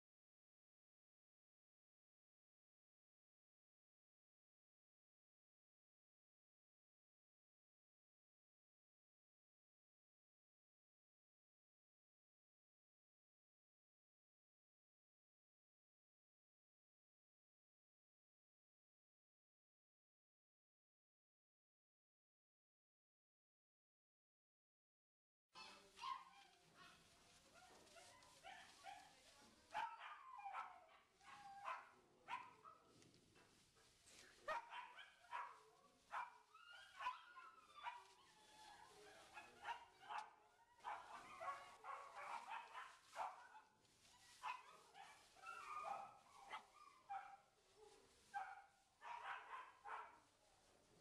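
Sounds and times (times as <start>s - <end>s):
paper bedding rustling: 27.0s - 29.6s.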